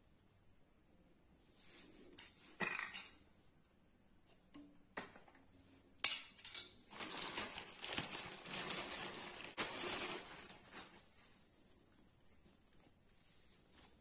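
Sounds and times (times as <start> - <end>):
plastic wrapping crinkling: 6.8 - 13.1.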